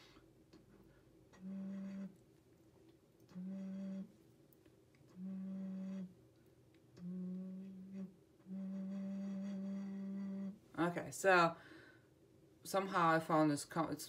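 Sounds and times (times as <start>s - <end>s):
clay flute breathy notes: 1.4s - 2.2s, 3.3s - 4.2s, 5.1s - 6.2s, 7.0s - 10.6s.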